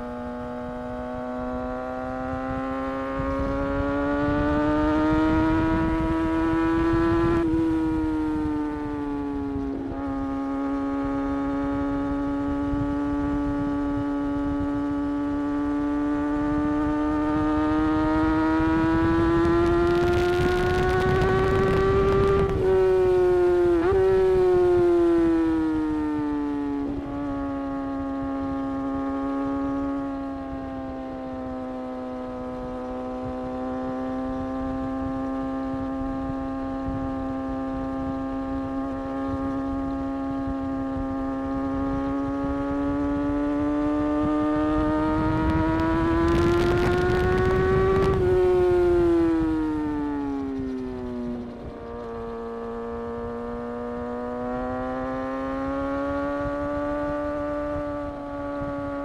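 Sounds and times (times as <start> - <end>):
motorcycle engine at high revs: 0.0 - 59.0
wind rush: 2.5 - 10.2, 16.6 - 28.4, 34.8 - 53.6.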